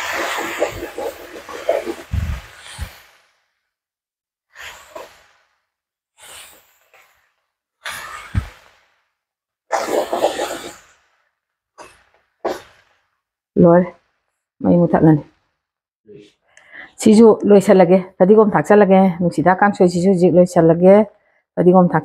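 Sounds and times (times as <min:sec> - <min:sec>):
wooden spatula scraping a wok: 0:00.0 - 0:03.4, 0:06.2 - 0:09.0, 0:09.7 - 0:11.2, 0:11.8 - 0:14.2.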